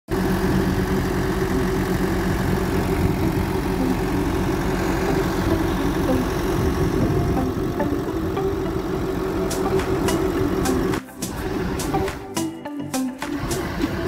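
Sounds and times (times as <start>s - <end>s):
truck engine running: 0.1s - 14.0s.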